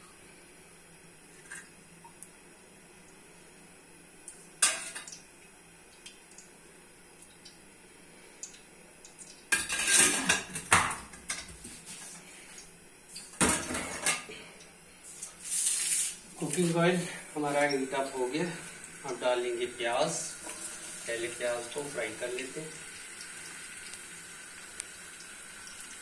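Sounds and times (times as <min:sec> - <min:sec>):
pots and pans clattering: 0:09.5 - 0:11.7, 0:13.4 - 0:14.3.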